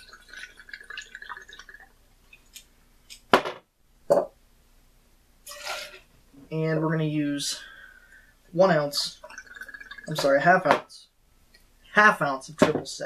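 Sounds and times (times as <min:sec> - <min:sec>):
liquid trickling into glass: 0:00.0 - 0:02.6, 0:08.8 - 0:10.6.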